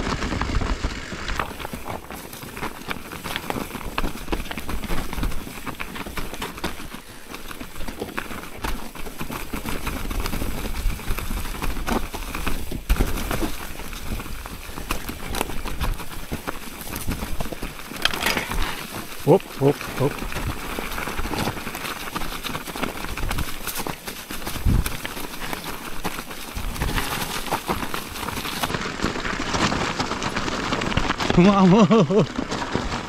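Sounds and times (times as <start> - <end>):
bike rattling and knocking: 0.0 - 33.0
tyres rolling over leaves and stones: 0.0 - 33.0
wind noise on microphone: 24.4 - 25.1.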